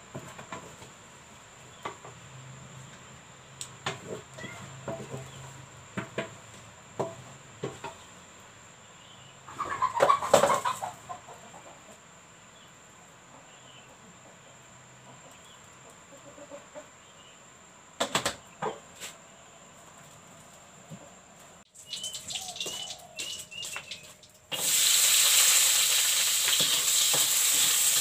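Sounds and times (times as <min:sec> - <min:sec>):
chicken clucking and squawking: 0:09.3 - 0:17.4, 0:21.8 - 0:24.2
faint bird chirps: 0:21.7 - 0:24.2.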